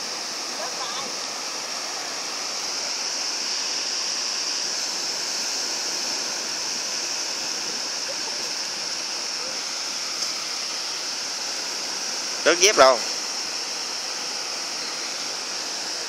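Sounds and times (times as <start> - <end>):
surf breaking on a beach: 7.3 - 9.6.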